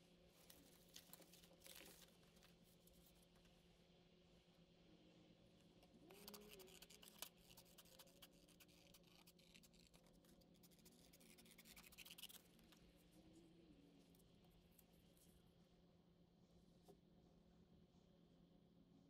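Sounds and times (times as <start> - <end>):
faint scratching with light clicks: 0.3 - 3.6, 5.7 - 13.4.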